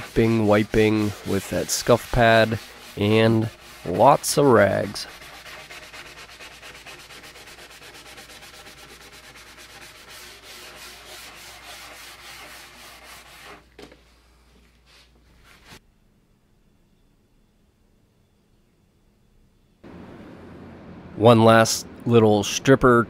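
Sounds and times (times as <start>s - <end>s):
scuff pad scrubbing wood: 0.0s - 13.6s.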